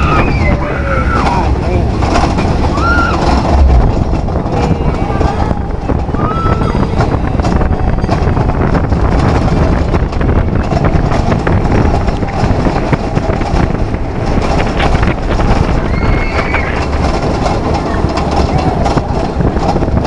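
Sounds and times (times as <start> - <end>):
roller coaster rumbling on track: 0.0 - 20.0
wind rushing across microphone: 0.0 - 20.0.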